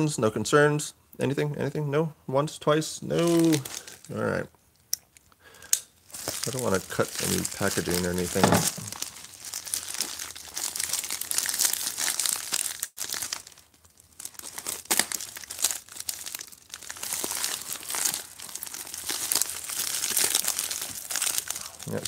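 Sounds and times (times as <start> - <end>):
plastic mailer crinkling: 3.1 - 4.1, 6.0 - 22.0.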